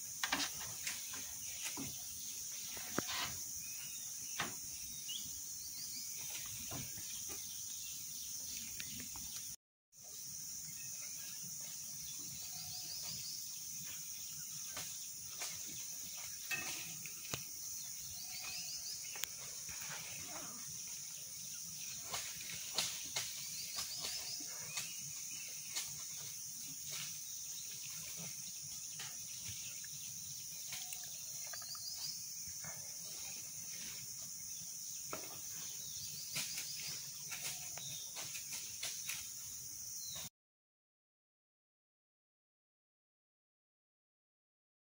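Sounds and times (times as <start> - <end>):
high-pitched insect chorus: 0.0 - 40.2.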